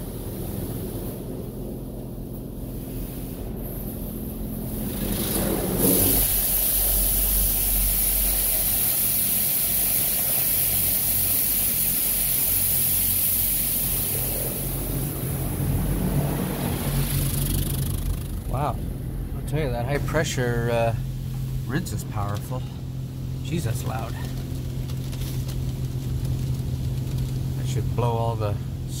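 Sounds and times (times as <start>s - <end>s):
steady hum: 0.0s - 29.0s
water jets blasting on metal: 4.0s - 18.7s.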